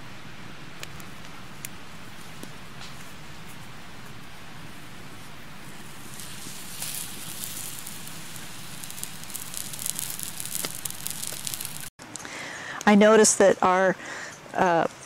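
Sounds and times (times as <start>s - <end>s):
grease sizzling and popping: 0.8s - 11.9s.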